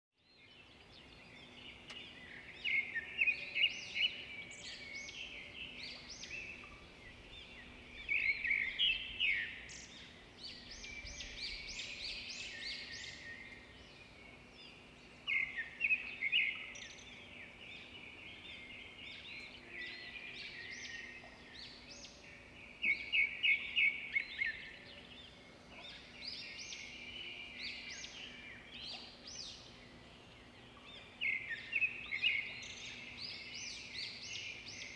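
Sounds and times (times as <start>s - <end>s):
birds chirping and trilling: 0.2s - 34.9s
outdoor background noise: 0.2s - 34.9s.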